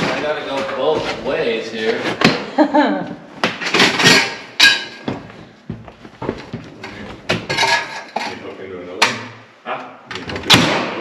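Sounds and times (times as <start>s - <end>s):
wooden board and tools clattering: 3.4s - 5.3s, 6.2s - 8.4s.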